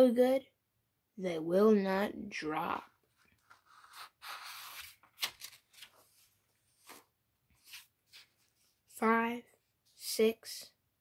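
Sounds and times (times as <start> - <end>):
book page rustling: 3.0 - 9.0.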